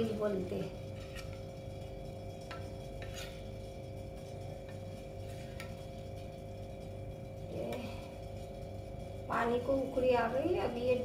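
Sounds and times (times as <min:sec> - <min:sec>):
steady low hum: 0:00.0 - 0:11.0
ladle stirring batter: 0:00.5 - 0:09.1.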